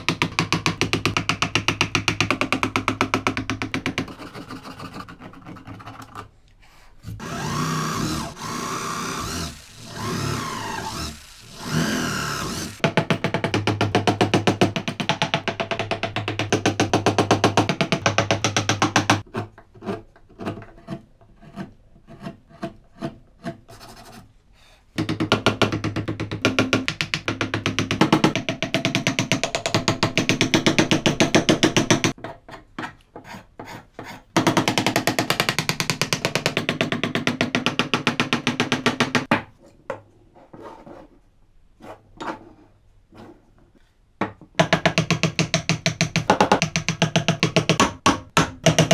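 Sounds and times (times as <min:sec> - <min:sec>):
carving tools scraping wood: 0:07.0 - 0:12.8, 0:19.0 - 0:24.3, 0:33.0 - 0:34.4.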